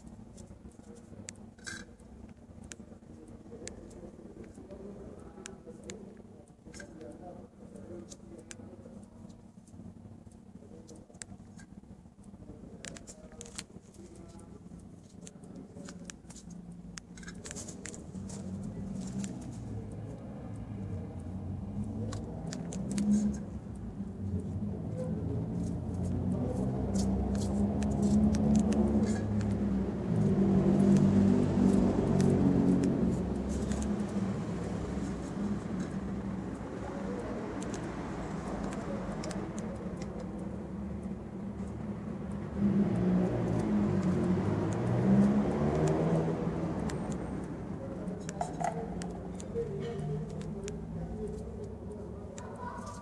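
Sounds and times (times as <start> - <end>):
light clicks and rustles: 0.0 - 20.2
vehicle engine running: 7.0 - 52.2.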